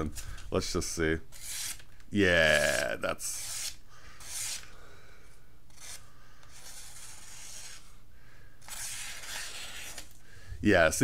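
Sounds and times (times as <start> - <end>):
knife slicing paper: 8.6 - 10.1.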